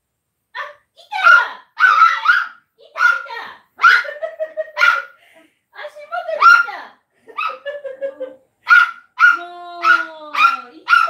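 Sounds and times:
dog barking in high yips: 1.2s - 4.2s, 4.8s - 5.2s, 6.4s - 6.8s, 7.4s - 7.6s, 8.7s - 11.0s.

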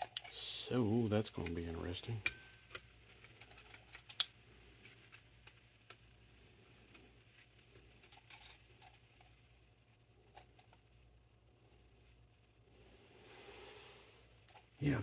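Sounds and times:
small metal parts clicking: 2.2s - 6.0s.

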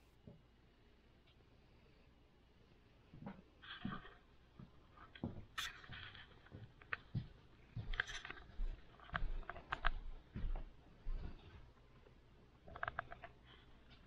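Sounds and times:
small clicks and rustles: 3.1s - 14.0s.

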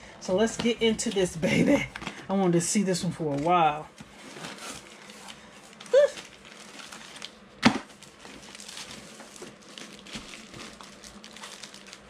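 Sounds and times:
cardboard and plastic rustling: 3.0s - 12.0s.

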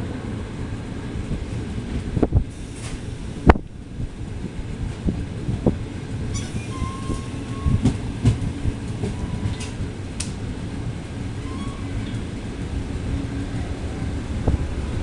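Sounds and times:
train rumbling on track: 0.0s - 15.0s
thin wheel squeal: 6.3s - 7.8s, 11.4s - 12.2s.

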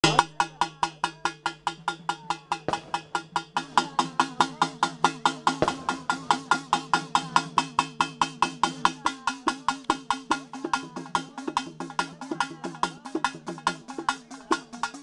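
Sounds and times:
hand drum beaten fast: 0.0s - 15.0s.

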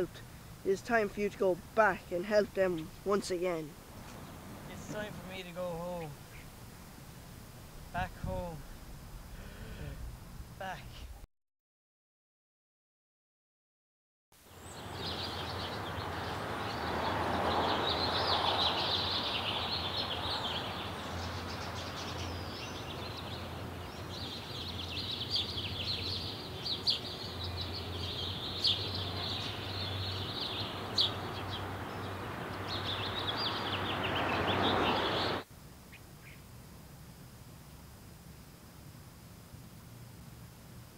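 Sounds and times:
birds chirping: 0.0s - 11.0s, 14.5s - 36.5s
steady rushing noise: 1.6s - 11.2s
low hum: 3.7s - 11.2s.

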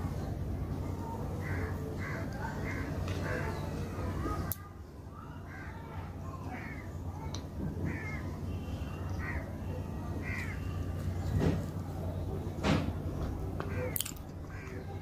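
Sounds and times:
steady low hum: 0.0s - 15.0s
crow cawing: 1.4s - 3.6s, 5.4s - 7.0s, 7.8s - 8.3s, 9.2s - 9.5s, 10.2s - 10.8s, 13.7s - 15.0s.

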